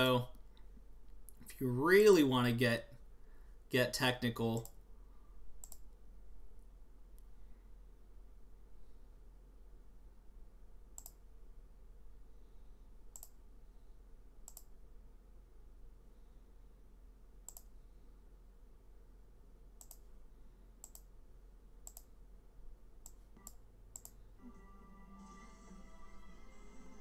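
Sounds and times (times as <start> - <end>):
computer mouse clicks: 5.6 - 6.0, 11.0 - 11.2, 13.1 - 13.4, 14.4 - 14.8, 17.4 - 17.8, 19.8 - 20.2, 20.8 - 21.2, 21.8 - 22.2, 23.0 - 24.2.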